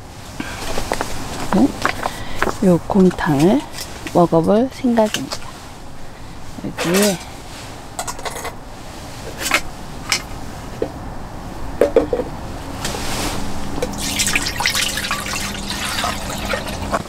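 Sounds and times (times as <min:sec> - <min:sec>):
metal utensils clinking: 0:06.8 - 0:07.2
soup pouring into metal tin: 0:13.9 - 0:17.0.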